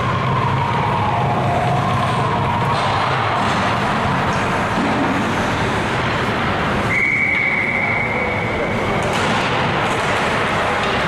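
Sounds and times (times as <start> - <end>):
crowd chatter: 0.0 - 11.0
referee's whistle blast: 6.9 - 8.5.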